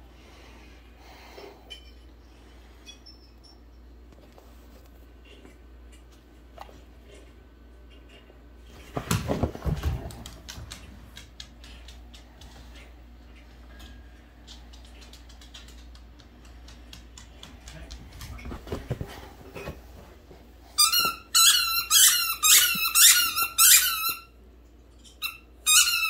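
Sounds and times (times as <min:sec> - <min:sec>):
dog squeaking a toy ball: 0:20.8 - 0:24.3, 0:25.2 - 0:26.0.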